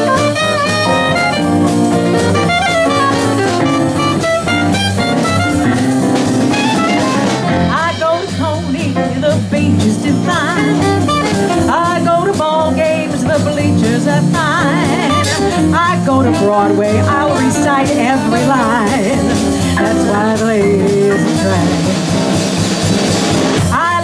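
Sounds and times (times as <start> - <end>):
saxophone solo: 0.0 - 7.7, 10.3 - 12.2, 14.3 - 20.0
double bass: 0.0 - 24.0
drums: 0.0 - 24.0
piano: 0.0 - 24.0.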